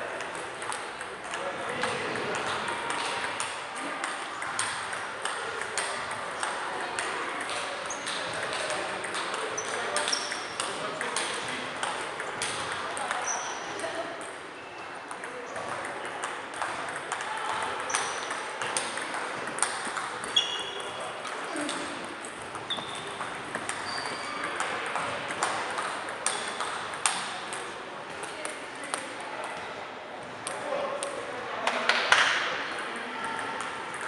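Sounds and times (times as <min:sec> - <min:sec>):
background chatter: 0:00.0 - 0:34.0
table tennis balls clicking: 0:00.1 - 0:29.6, 0:33.3 - 0:34.0.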